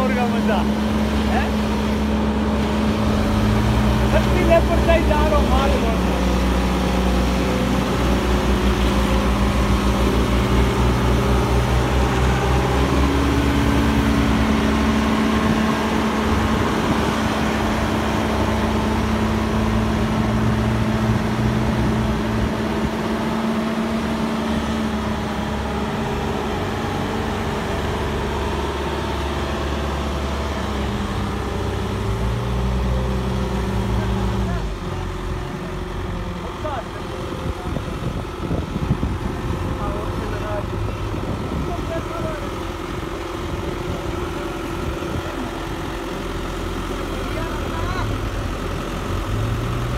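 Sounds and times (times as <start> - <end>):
diesel engine running under load: 0.0 - 49.9.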